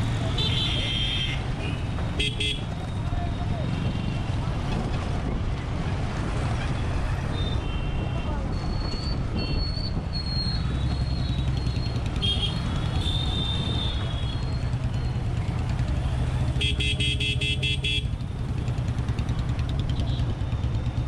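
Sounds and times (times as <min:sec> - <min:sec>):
vehicle horn honking: 0:00.4 - 0:02.7, 0:16.6 - 0:18.1
motorcycle engine running: 0:14.7 - 0:21.0.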